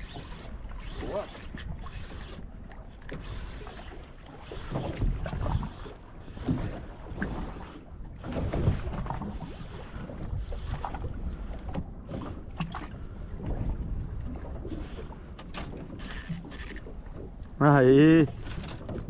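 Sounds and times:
water lapping against a boat hull: 0.0 - 19.0.

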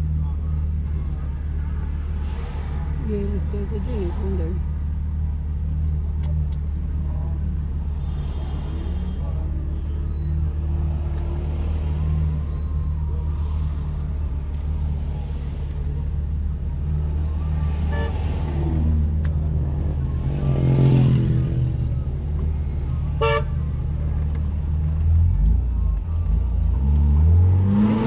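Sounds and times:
car engine and road rumble: 0.0 - 28.0
car horn toot: 23.2 - 23.7.

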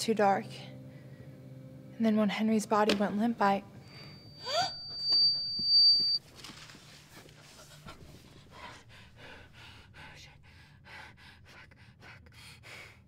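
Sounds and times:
high ringing tone: 3.7 - 6.3.

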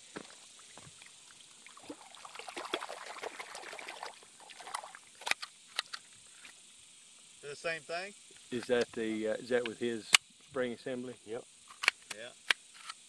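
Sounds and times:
puddle water splashing: 0.2 - 5.3.

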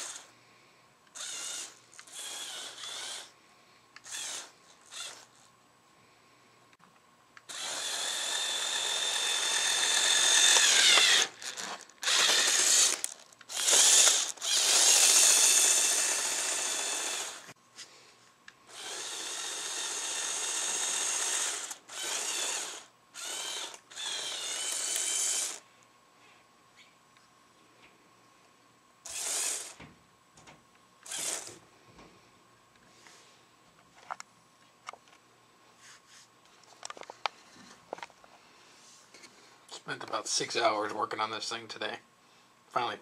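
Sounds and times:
toy electric motors whining: 0.0 - 0.3, 1.1 - 3.3, 4.0 - 5.5, 7.4 - 17.6, 18.7 - 25.6, 29.0 - 29.8, 31.0 - 31.6.

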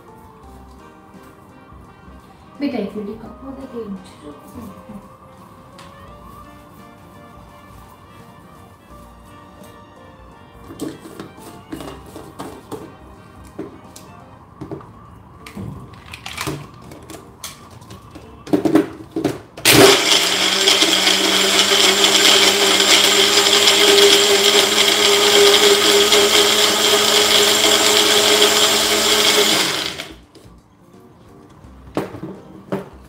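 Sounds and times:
blender motor running: 19.6 - 30.2.

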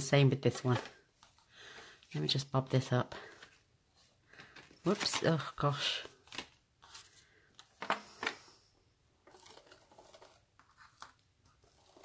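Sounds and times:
paper rustling: 3.2 - 8.5, 9.2 - 12.0.

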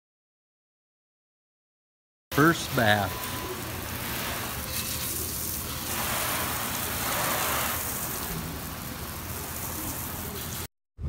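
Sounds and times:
hose spray hitting car: 4.0 - 10.7.

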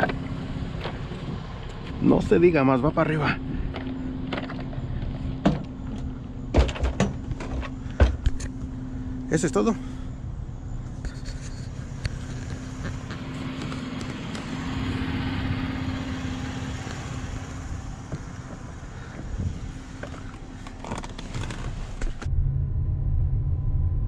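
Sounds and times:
tyre and road noise: 0.0 - 22.4
low rumble inside cab: 0.0 - 24.0
vehicle engine running: 0.0 - 24.0.

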